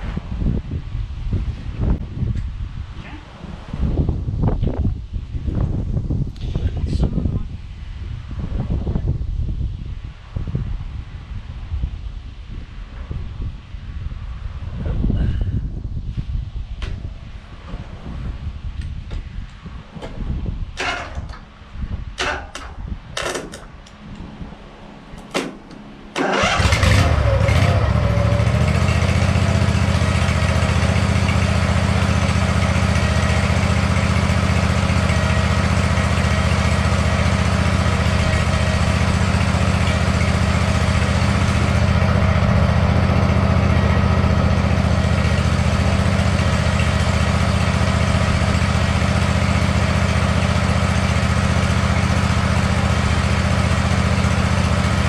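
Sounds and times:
lawn mower engine running: 20.8s - 55.0s.

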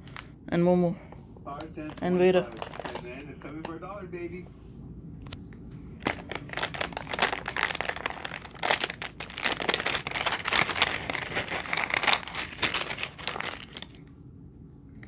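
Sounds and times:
treat bag crinkling: 1.6s - 3.4s, 6.0s - 14.1s.

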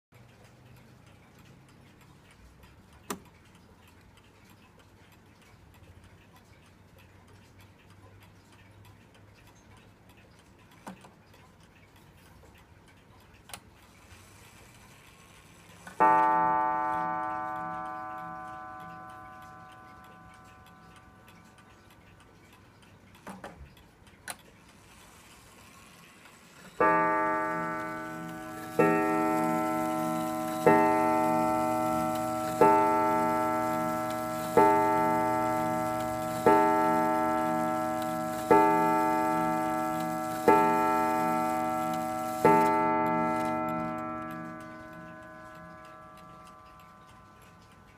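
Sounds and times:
clock ticking: 0.1s - 47.9s
clock gong strikes: 16.0s - 21.1s, 26.8s - 47.3s.

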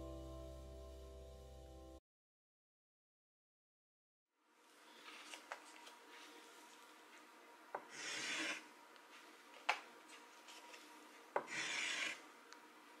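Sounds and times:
pastel stick scratching on panel: 7.8s - 8.6s, 11.4s - 12.2s.

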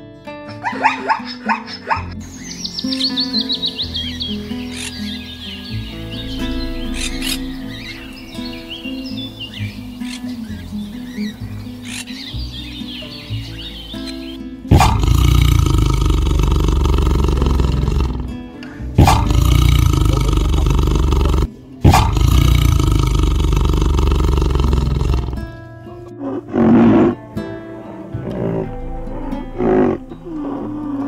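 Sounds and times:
background music: 0.0s - 31.0s
short loud sound: 5.7s - 9.9s
tiger roaring: 14.7s - 18.4s, 19.0s - 25.6s, 26.2s - 27.2s, 28.2s - 31.0s.

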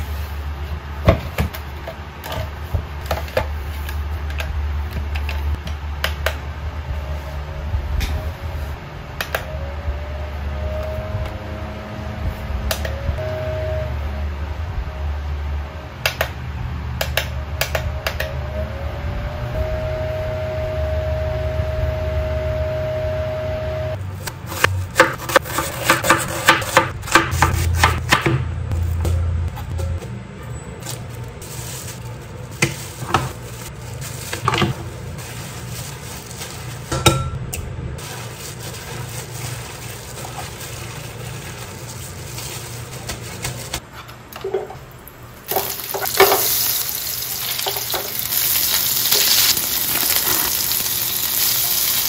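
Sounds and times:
steady low hum: 0.0s - 45.5s
knife chopping on board: 24.5s - 28.5s.

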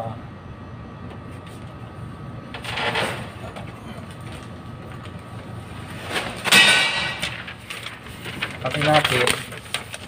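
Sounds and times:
scraping rustle of handling: 7.3s - 10.0s.

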